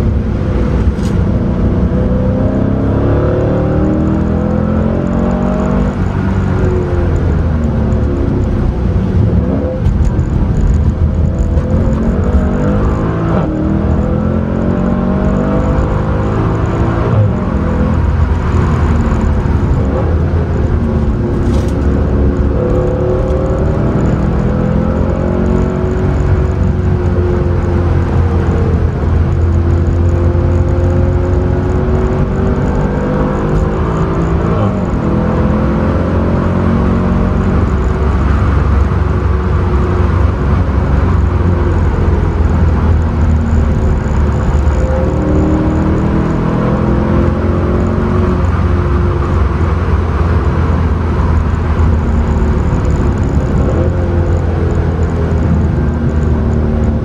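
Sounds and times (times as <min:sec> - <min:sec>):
car engine drone from cabin: 0:00.0 - 0:57.0
road noise: 0:00.0 - 0:57.0.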